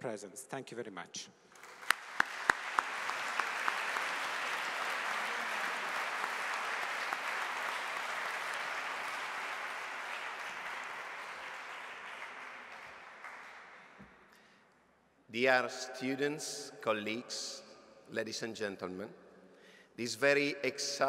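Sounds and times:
audience applauding: 1.6 - 14.0
single sharp claps: 1.6 - 14.2.

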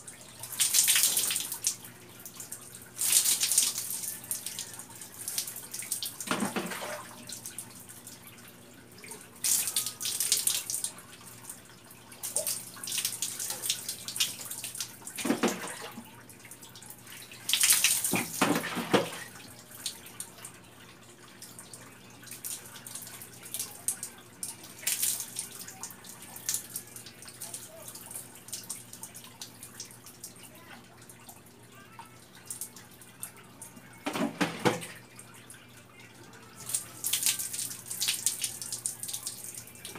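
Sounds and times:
water poured splashing on concrete: 3.0 - 4.1
dipper scooping water from bucket: 6.2 - 7.1, 18.0 - 19.3, 34.0 - 35.0.

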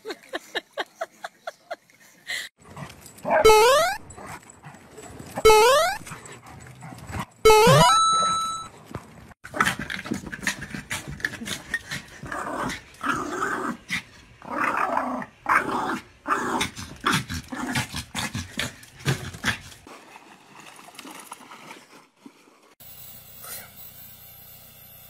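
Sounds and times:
small dog growling and barking: 9.5 - 19.7.

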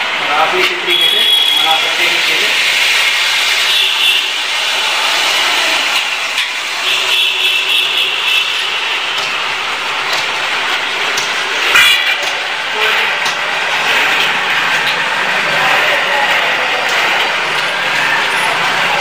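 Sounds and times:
food sizzling in hot oil: 0.8 - 12.8.

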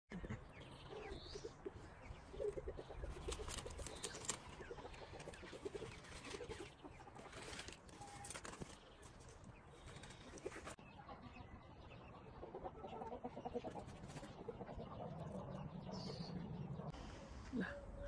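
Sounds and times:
chickens clucking: 0.1 - 8.7, 9.8 - 17.0
clicks and rustles of leaves: 2.5 - 10.8.

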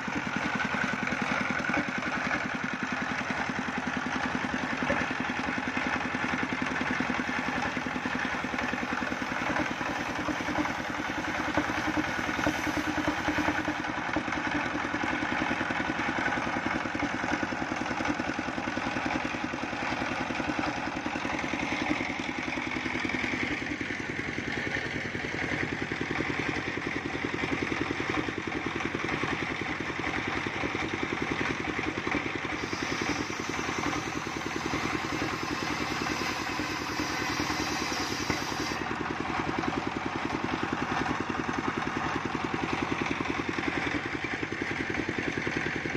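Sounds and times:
circular saw cutting wood: 0.0 - 14.7, 32.4 - 41.6
diesel engine running: 0.0 - 45.9.

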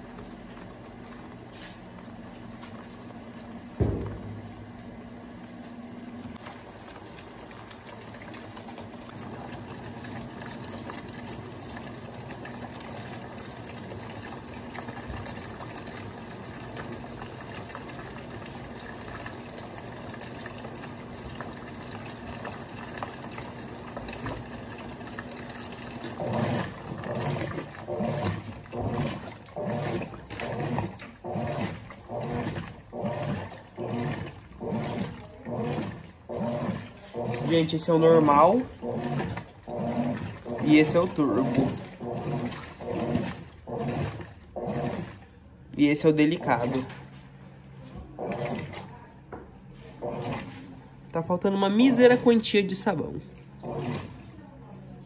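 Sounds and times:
washing machine agitator sloshing: 0.0 - 55.0
water rushing into washing machine: 0.0 - 55.0
thump: 3.8 - 4.5.

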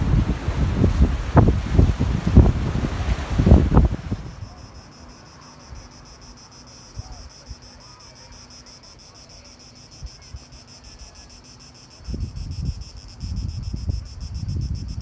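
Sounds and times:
wind bumps on microphone: 0.0 - 4.5, 12.0 - 15.0
cicadas buzzing: 0.0 - 15.0.

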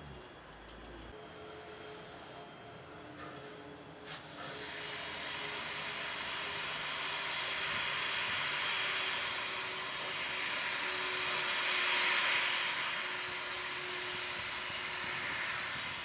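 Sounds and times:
steam locomotive hissing steam: 4.0 - 16.0.

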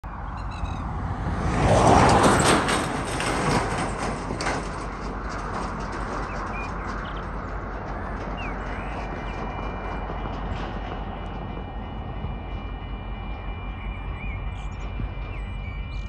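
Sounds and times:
vehicle passing close by: 0.1 - 6.1.

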